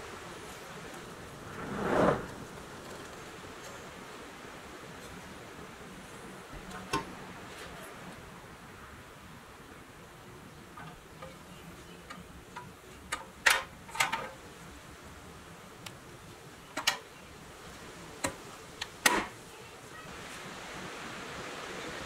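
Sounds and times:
light metallic clicks and knocks: 10.7s - 14.4s.

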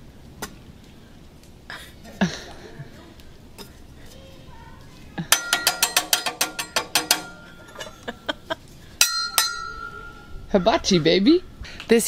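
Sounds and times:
metal spatulas clanging: 5.3s - 8.1s, 9.0s - 11.0s.

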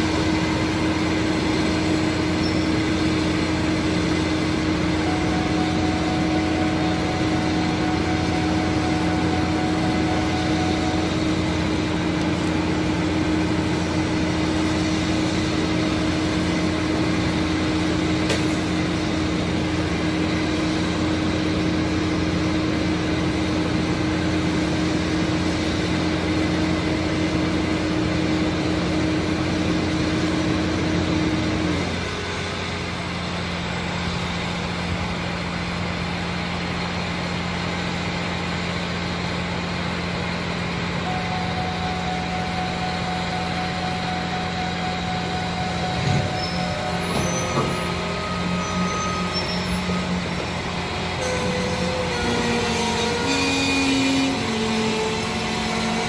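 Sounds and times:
heavy diesel engine idling: 0.0s - 56.0s.

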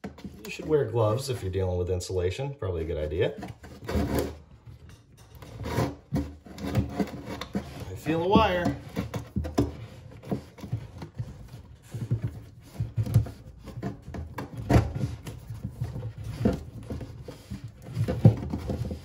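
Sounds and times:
cable rubbing and scraping: 3.0s - 4.6s, 5.3s - 19.0s.

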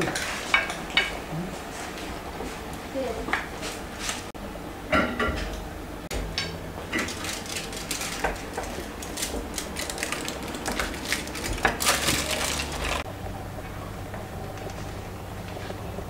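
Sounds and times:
aluminium foil crinkling: 6.9s - 13.0s.

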